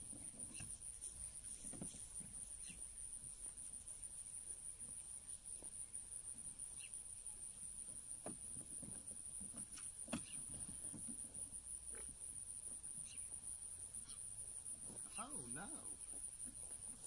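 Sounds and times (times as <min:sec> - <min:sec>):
insect trilling: 0:14.0 - 0:16.4.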